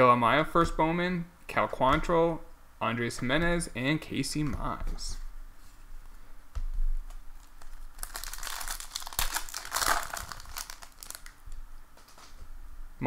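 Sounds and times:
wrapper crinkling and tearing: 7.3s - 11.4s.

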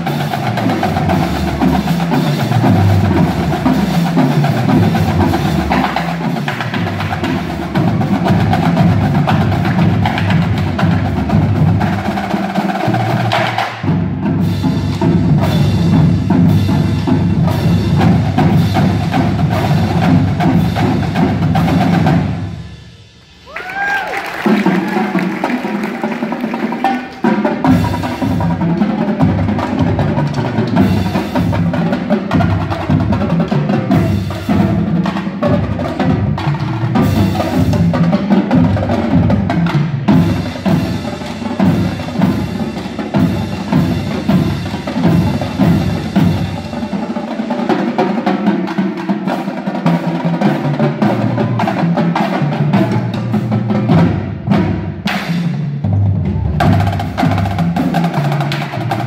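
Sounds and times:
bass drums: 0.0s - 25.6s, 27.3s - 47.2s
snare drums: 0.0s - 59.0s
tenor drums: 0.0s - 59.0s.

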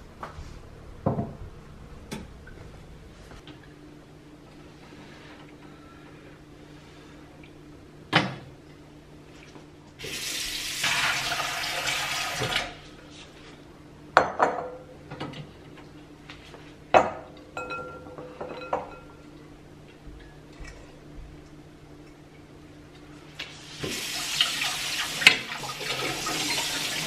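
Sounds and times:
hot water pouring into sink: 10.0s - 12.9s, 23.5s - 27.0s
bowls and colander clattering: 17.0s - 19.3s.

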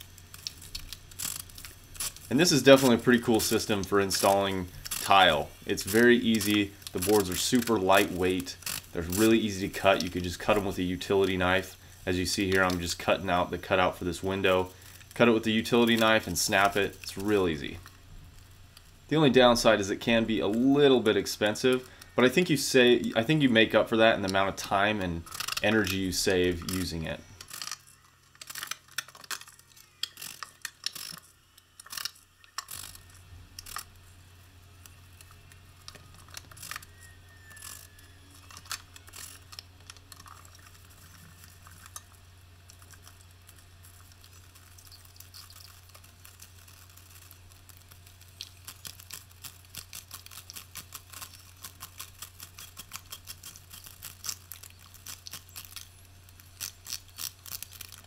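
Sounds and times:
low steady hum: 0.0s - 58.0s.

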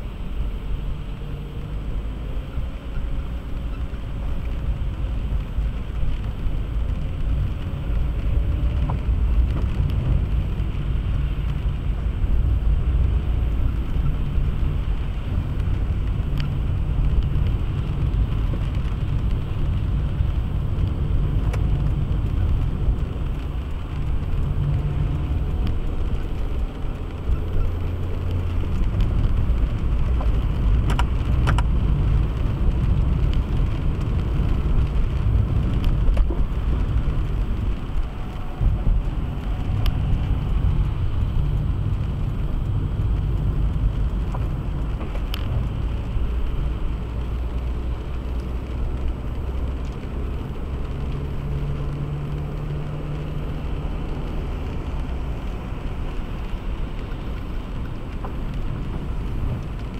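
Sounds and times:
car driving on highway: 0.0s - 59.9s.

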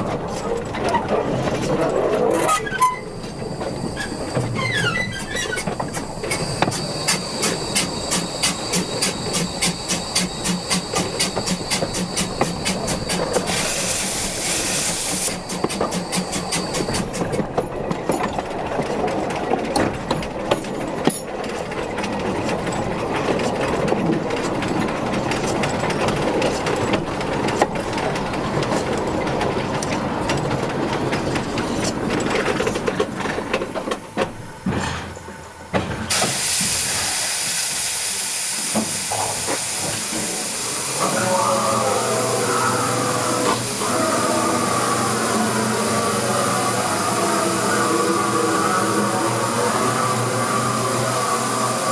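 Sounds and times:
train wheels rumbling on rail: 0.0s - 51.9s
steam hissing: 3.0s - 17.3s, 36.1s - 51.9s.

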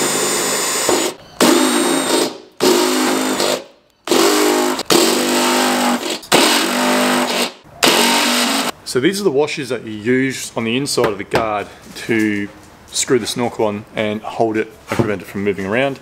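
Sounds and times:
cordless drill drilling metal: 0.0s - 8.7s.

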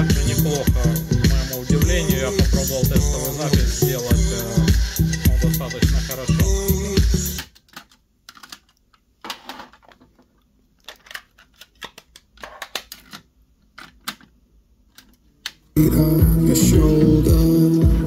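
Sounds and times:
music from tape: 0.0s - 7.5s, 15.8s - 18.0s
cassette plastic clicks: 10.8s - 15.6s.

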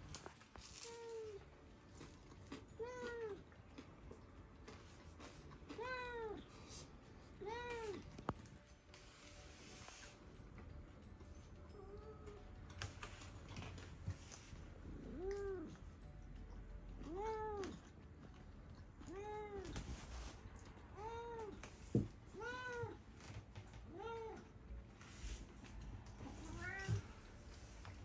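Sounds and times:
cat meowing: 26.2s - 27.2s.

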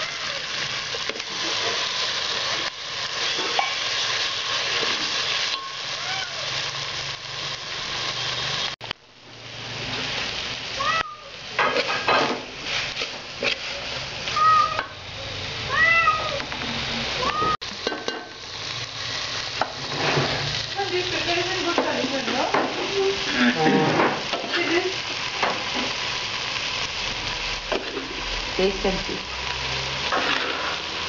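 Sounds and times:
food sizzling in a pot: 0.0s - 31.0s.

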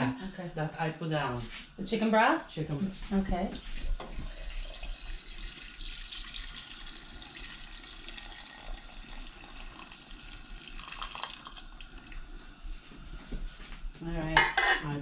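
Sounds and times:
liquid pouring into water: 3.8s - 12.2s.

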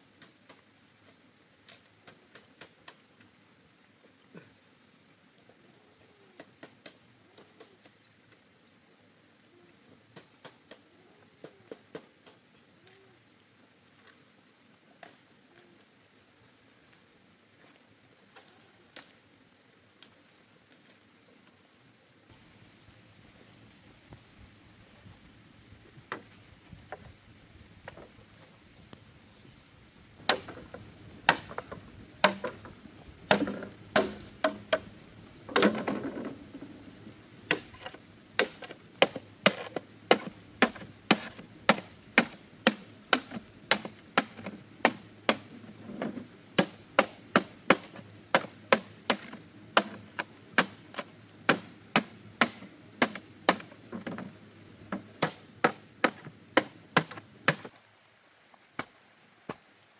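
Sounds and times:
machete chopping bamboo: 30.3s - 30.7s, 31.3s - 32.7s, 33.3s - 34.9s, 37.5s - 45.5s, 46.6s - 54.2s, 55.2s - 57.7s.

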